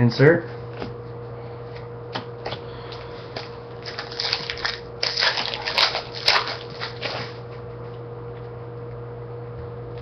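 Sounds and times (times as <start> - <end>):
foil wrapper crinkling: 3.8 - 7.4.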